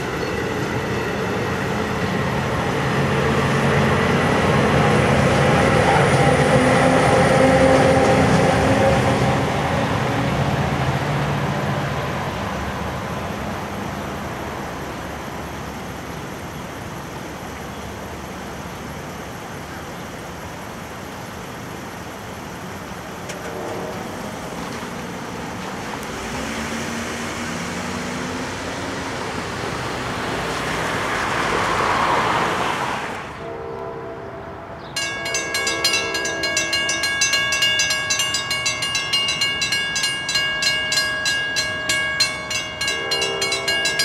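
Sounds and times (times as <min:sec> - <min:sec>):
car traffic noise: 0:00.0 - 0:44.0
passing train: 0:00.0 - 0:44.0
vehicle passing close: 0:25.6 - 0:33.4.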